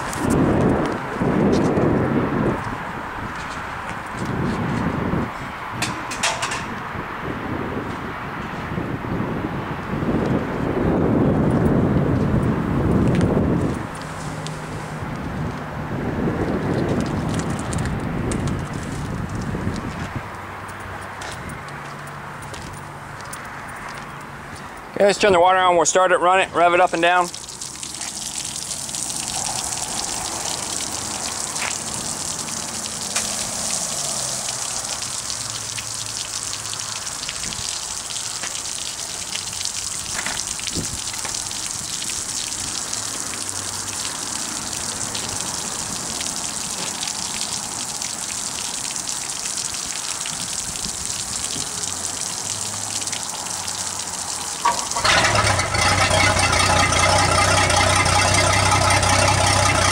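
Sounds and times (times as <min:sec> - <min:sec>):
water gushing and splashing on concrete: 0:00.0 - 0:24.2, 0:25.0 - 0:59.9
boat engine idling: 0:54.6 - 0:59.9.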